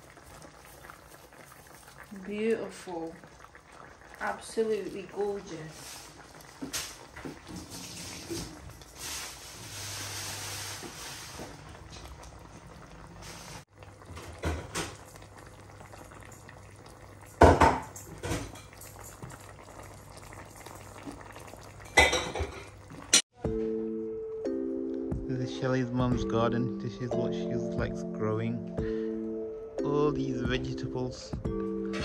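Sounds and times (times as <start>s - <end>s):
curry simmering in a pot: 0.0s - 23.2s.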